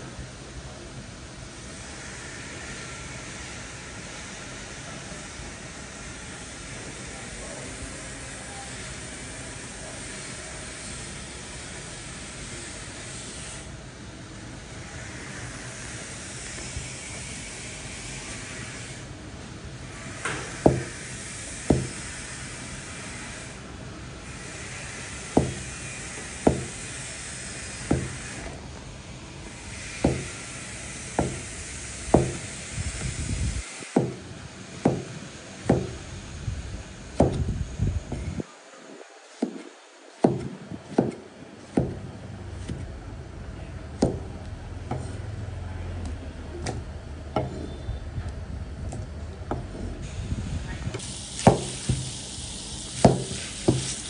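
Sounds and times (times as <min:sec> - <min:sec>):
steady hiss: 0:20.0 - 0:42.6, 0:50.0 - 0:54.0
knife slicing tomatoes: 0:53.0 - 0:54.0.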